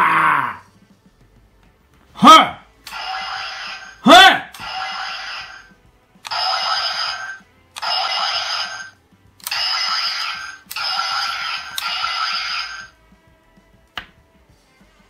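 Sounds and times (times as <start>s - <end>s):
buzzy toy sound effect: 2.9s - 5.7s, 6.3s - 12.9s.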